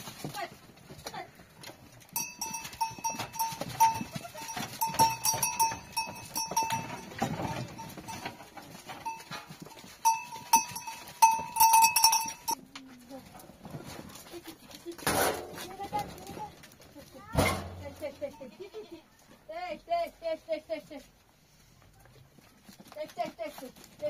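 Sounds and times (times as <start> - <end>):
livestock bells clinking: 1.9 - 12.6, 17.6 - 19.0.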